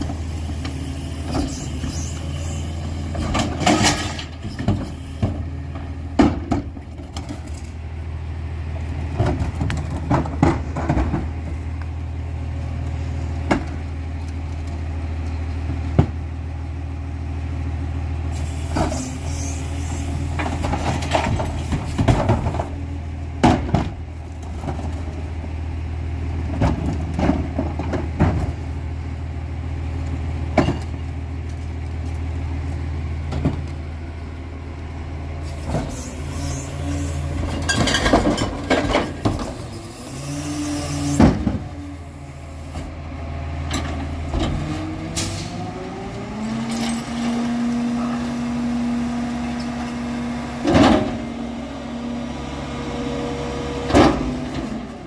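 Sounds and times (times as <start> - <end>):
hydraulic whine: 0.0 - 5.5, 18.3 - 20.7, 35.4 - 38.2, 39.0 - 42.9
trash carts clanking: 2.4 - 7.8, 9.0 - 11.8, 20.3 - 22.8, 35.4 - 40.0
diesel engine idling: 4.2 - 21.9, 22.6 - 40.3, 41.5 - 46.6, 47.4 - 55.0.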